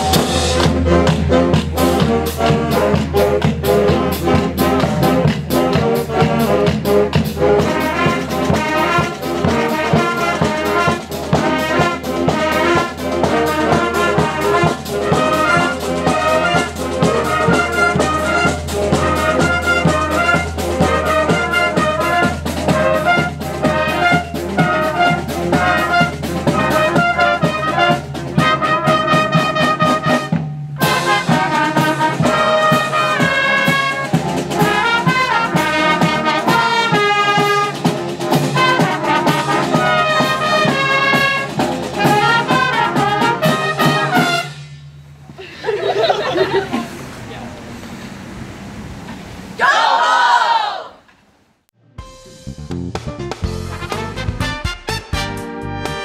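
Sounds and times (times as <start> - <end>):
band playing a quick tune: 0.0 - 48.2, 51.8 - 56.0.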